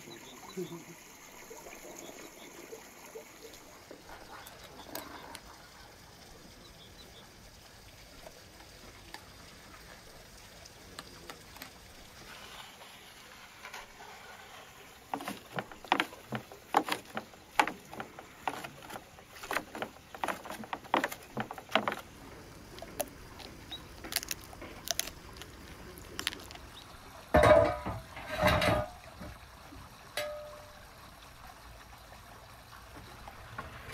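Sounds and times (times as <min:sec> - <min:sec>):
quiet outdoor background: 0:00.0 - 0:33.9
dog chewing meat: 0:15.2 - 0:26.9
wet clicks of meat pulled apart: 0:22.8 - 0:26.8.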